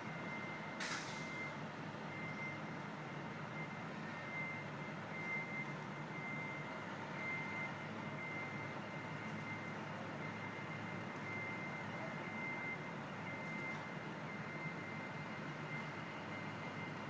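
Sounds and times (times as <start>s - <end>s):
high-pitched alarm beeps: 0.0s - 2.7s
city background: 0.0s - 17.0s.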